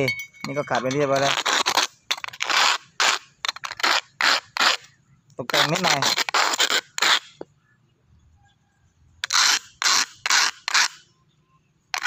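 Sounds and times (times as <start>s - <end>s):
metal can scraping on asphalt: 0.6s - 7.5s.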